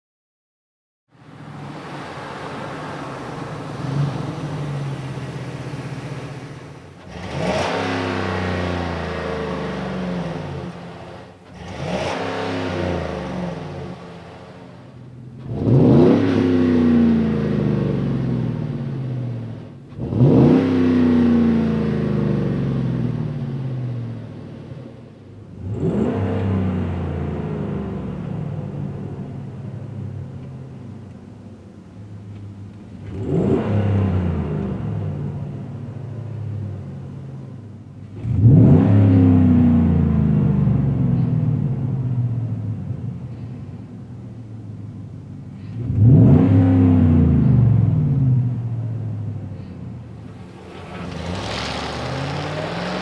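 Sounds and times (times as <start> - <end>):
truck engine revving: 1.5 - 24.2, 33.1 - 35.9, 38.2 - 41.4, 45.8 - 48.9, 49.6 - 53.0.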